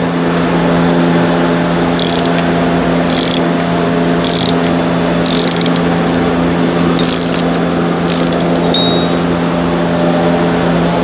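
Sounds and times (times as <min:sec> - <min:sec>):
socket ratchet clicking: 0:02.0 - 0:02.4, 0:03.1 - 0:03.5, 0:04.2 - 0:04.6, 0:05.2 - 0:05.9, 0:07.0 - 0:08.8.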